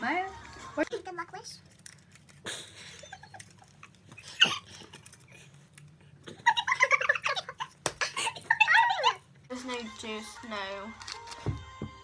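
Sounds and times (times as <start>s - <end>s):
girls giggling: 6.3s - 8.6s.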